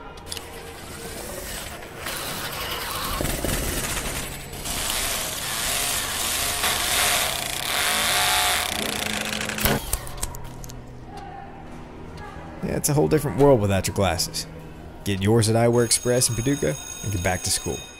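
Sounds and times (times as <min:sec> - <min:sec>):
electric pencil sharpener grinding: 0:04.4 - 0:10.1.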